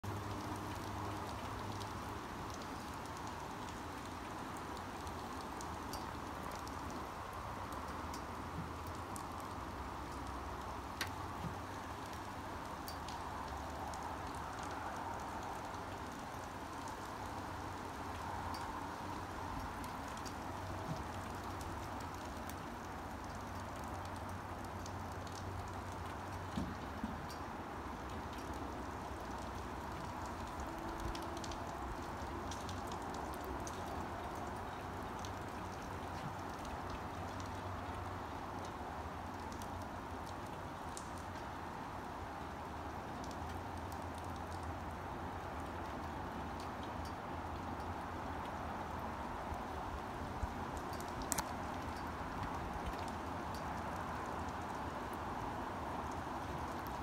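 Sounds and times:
steady rain falling: 0.0s - 57.0s
sharp drip ticks: 0.1s - 57.0s.

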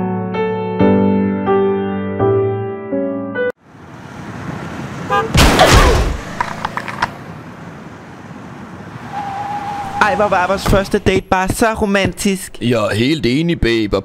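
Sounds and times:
piano music: 0.0s - 3.6s
road noise: 3.6s - 14.0s.

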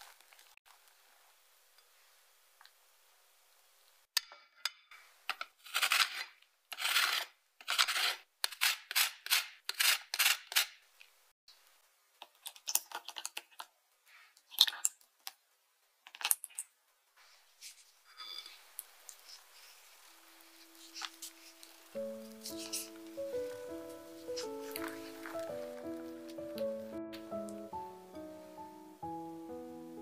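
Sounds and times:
lemon peel grating: 5.6s - 10.8s, 20.4s - 26.5s.

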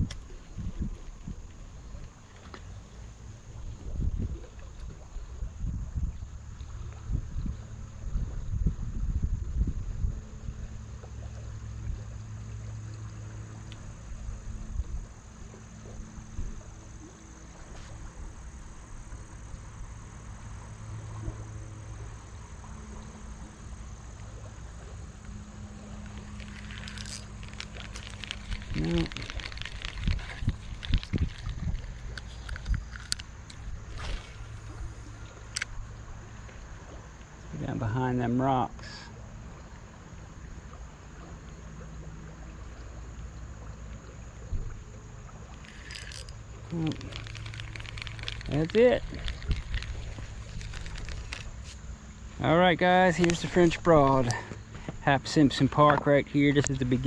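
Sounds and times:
wind rumble on microphone: 0.0s - 23.1s, 24.0s - 37.8s, 44.1s - 57.0s
low hum: 0.0s - 37.6s
river flowing: 10.2s - 57.0s
even hiss: 25.9s - 35.3s, 45.6s - 57.0s
faint ticks: 26.0s - 35.8s, 45.5s - 52.0s.

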